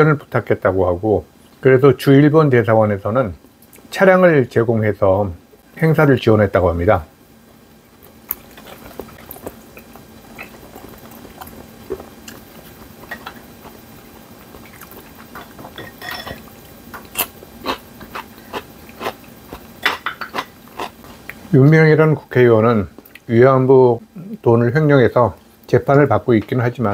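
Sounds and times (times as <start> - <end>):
man chewing food: 7.5 - 21.5, 23.0 - 23.3.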